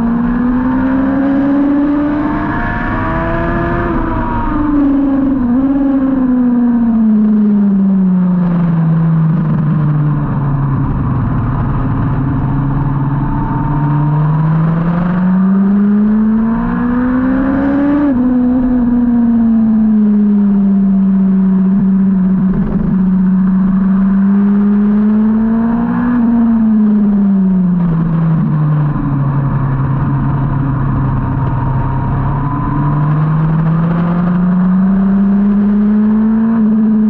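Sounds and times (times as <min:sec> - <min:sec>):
motorcycle engine revving: 0:00.0 - 0:37.0
wind rush: 0:09.4 - 0:15.2.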